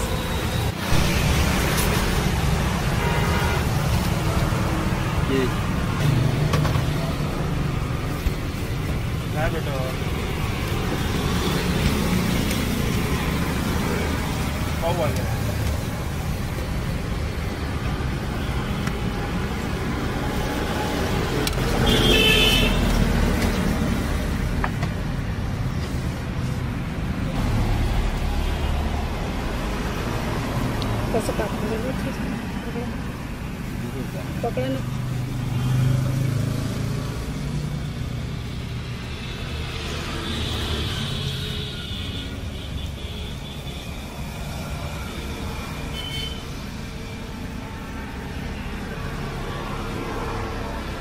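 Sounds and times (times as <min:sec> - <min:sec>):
road traffic noise: 0:00.0 - 0:51.0
vehicle horn: 0:02.9 - 0:03.8, 0:21.8 - 0:22.8, 0:45.9 - 0:46.5.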